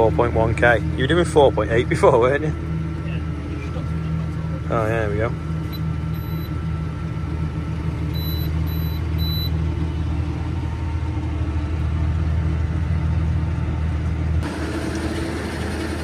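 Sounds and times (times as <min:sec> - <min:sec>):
outdoor machinery noise: 0:00.0 - 0:16.0
tractor engine drone: 0:00.0 - 0:16.0
short high beeps: 0:05.7 - 0:06.5, 0:08.2 - 0:09.5.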